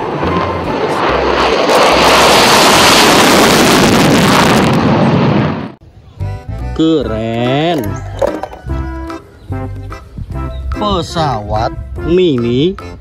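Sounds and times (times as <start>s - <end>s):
fighter jet taking off: 0.0s - 5.8s.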